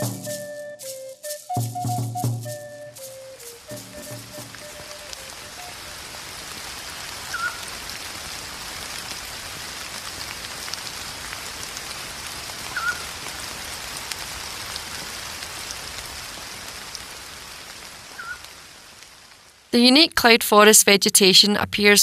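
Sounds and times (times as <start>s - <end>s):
steady rain: 0.0s - 20.9s.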